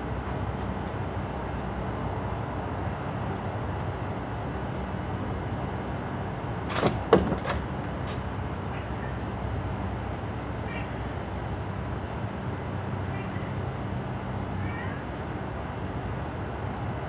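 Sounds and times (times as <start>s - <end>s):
thump: 6.7s - 7.6s
clatter of sharp knocks: 6.7s - 8.3s.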